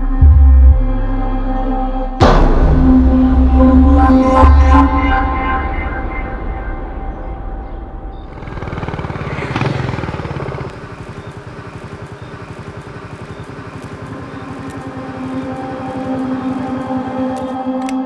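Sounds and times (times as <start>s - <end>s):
motorcycle engine: 5.3s - 18.0s.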